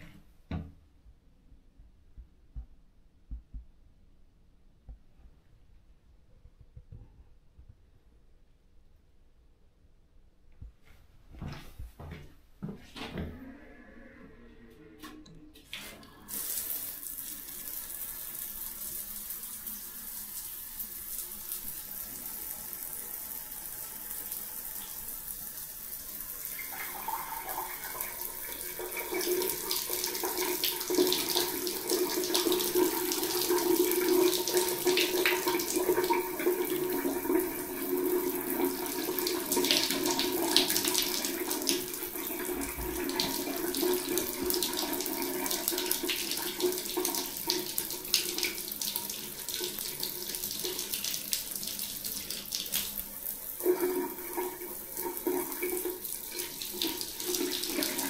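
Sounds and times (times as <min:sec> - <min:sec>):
steady tone: 0:13.2 - 0:16.3
shower water splashing: 0:15.0 - 0:58.0.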